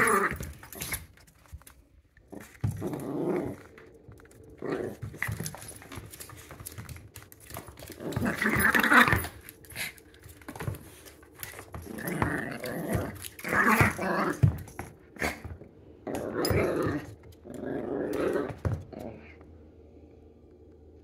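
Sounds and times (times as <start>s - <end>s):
small dog growling: 2.3s - 6.6s, 10.6s - 19.4s.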